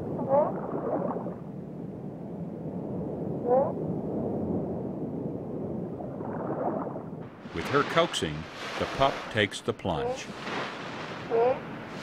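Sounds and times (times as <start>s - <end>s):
rushing water: 7.4s - 12.0s
sea lion call: 11.2s - 11.7s.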